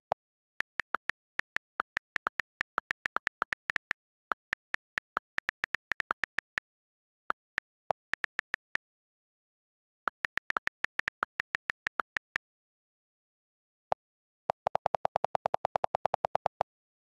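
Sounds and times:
on-screen keyboard clicks: 0.2 - 6.7, 7.3 - 8.8, 10.1 - 12.4, 14.5 - 16.7.

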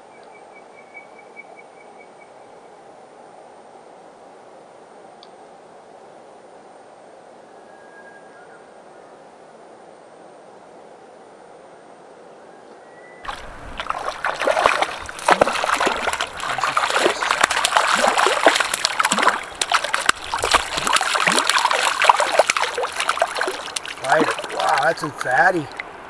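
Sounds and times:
fish splashing at water surface: 13.3 - 26.0.

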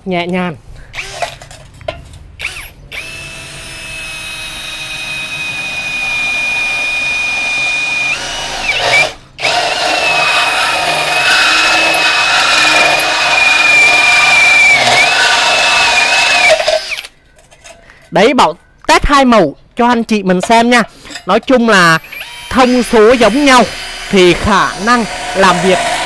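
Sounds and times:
drill cutting metal: 2.4 - 17.1, 22.0 - 26.0.

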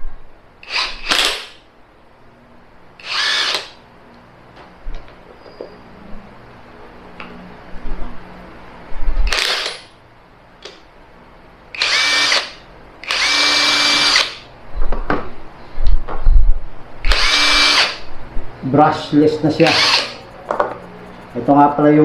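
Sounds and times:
impact wrench whine: 0.6 - 1.7, 3.0 - 3.8, 9.2 - 9.9, 11.7 - 14.5, 17.0 - 18.1, 19.6 - 20.7.

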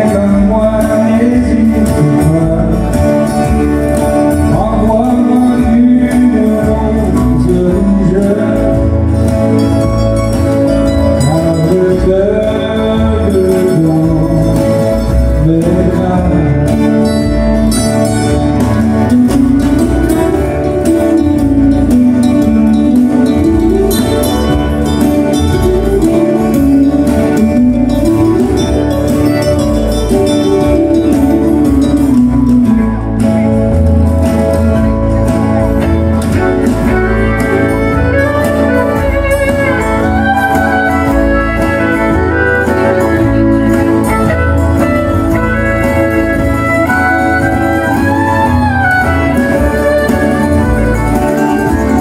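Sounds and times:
strummed acoustic guitars: 0.0 - 52.0
fiddle playing: 17.1 - 52.0.

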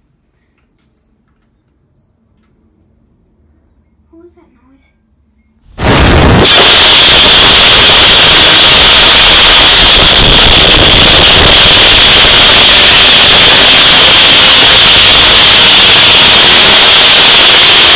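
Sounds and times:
heavily clipped explosion roar: 5.8 - 17.9.

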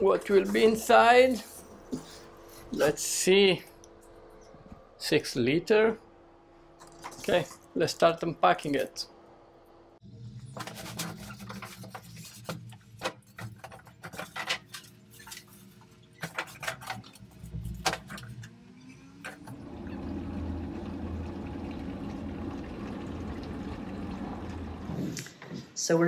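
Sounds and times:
water heater rushing hum: 0.0 - 13.1, 19.2 - 25.2.

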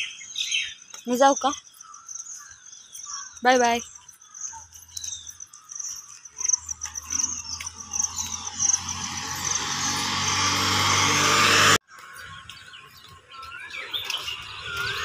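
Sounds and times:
insects chirping in a high trill: 1.0 - 9.8
motor vehicle approaching: 5.9 - 15.0.

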